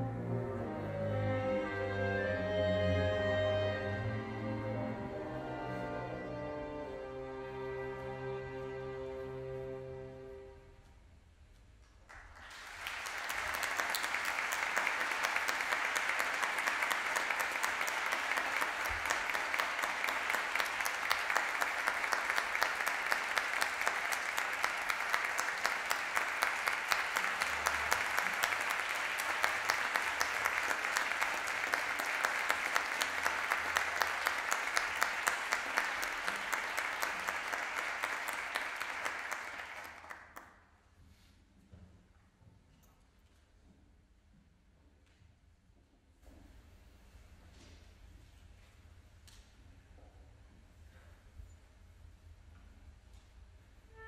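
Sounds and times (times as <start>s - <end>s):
audience applause: 12.1s - 40.5s.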